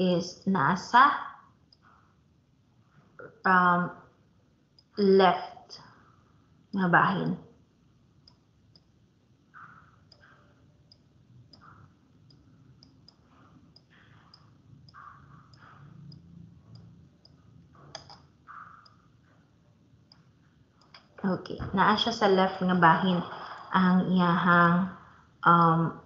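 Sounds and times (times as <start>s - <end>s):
computer mouse clicking: 8.2s - 8.9s, 9.5s - 19.0s.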